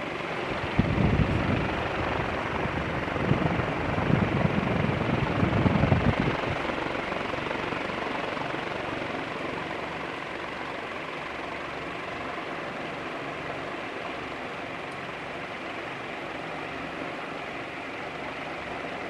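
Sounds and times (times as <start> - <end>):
ceiling fan whoosh: 0.0 - 19.0
wind buffeting microphone: 0.4 - 9.2.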